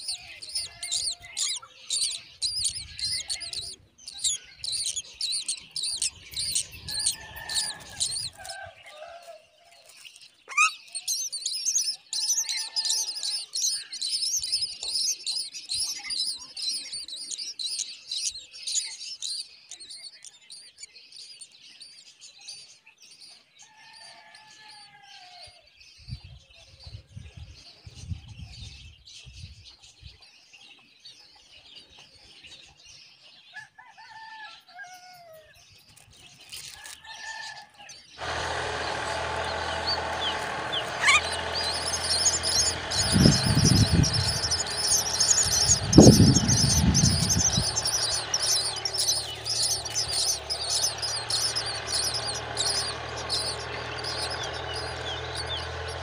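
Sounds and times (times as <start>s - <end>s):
nestlings chirping rapidly: 0.0s - 8.8s, 9.9s - 20.3s, 38.2s - 56.0s
lower falling bird calls: 0.0s - 20.2s, 38.2s - 56.0s.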